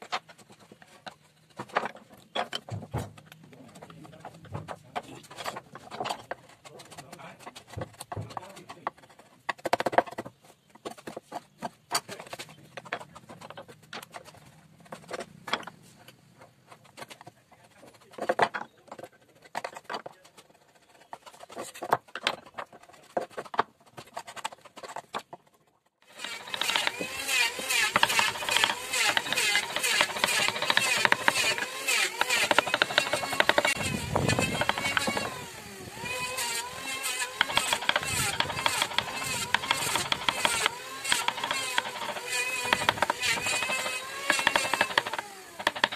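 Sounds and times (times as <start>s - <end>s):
chisels knocking on wood: 1.0s - 20.2s, 26.2s - 35.4s, 36.8s - 45.9s
mallet tapping a chisel: 26.3s - 27.0s, 27.8s - 33.8s, 34.5s - 35.3s, 37.4s - 45.9s.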